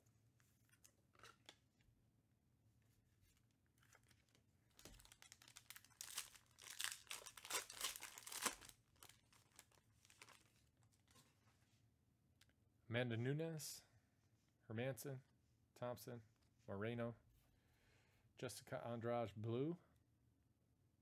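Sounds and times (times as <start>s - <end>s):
foil wrapper tearing and crinkling: 4.8s - 10.5s.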